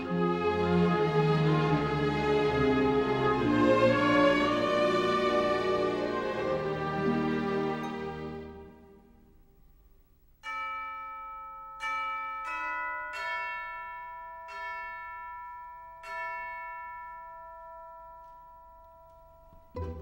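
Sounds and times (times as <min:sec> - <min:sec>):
tuned bells ringing: 0:10.4 - 0:20.0.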